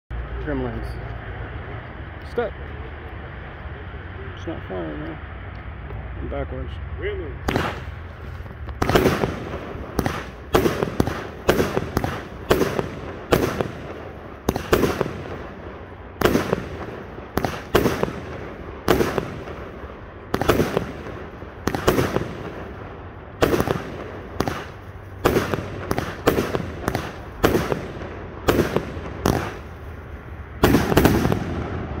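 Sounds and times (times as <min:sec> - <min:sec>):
fireworks launching and bursting: 0:07.4 - 0:32.0.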